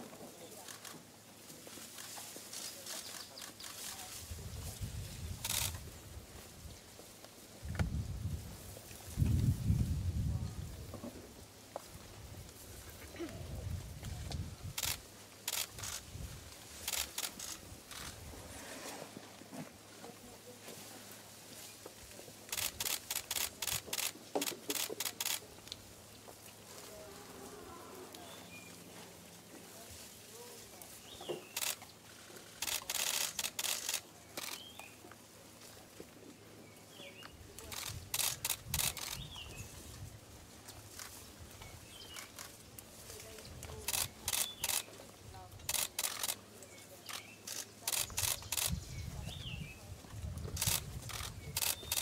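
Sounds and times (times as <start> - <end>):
camera shutter clicks: 5.4 - 5.8, 14.7 - 16.0, 22.5 - 25.4, 32.6 - 34.7, 45.7 - 46.4, 50.6 - 52.0.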